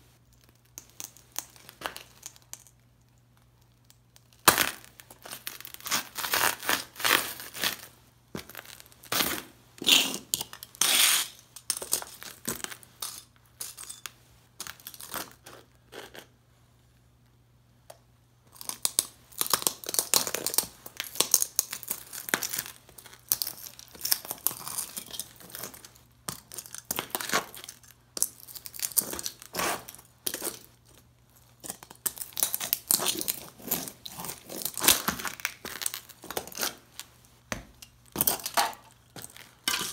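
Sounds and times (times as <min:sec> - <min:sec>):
boots crunching debris on concrete: 0:05.8 - 0:12.8, 0:31.6 - 0:39.9.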